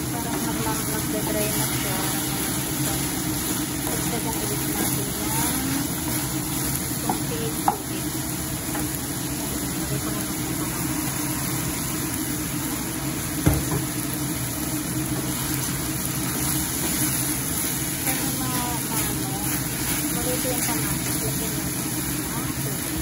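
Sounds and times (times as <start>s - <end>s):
chicken sizzling in a frying pan: 0.0s - 23.0s
wooden spatula stirring: 15.2s - 22.4s.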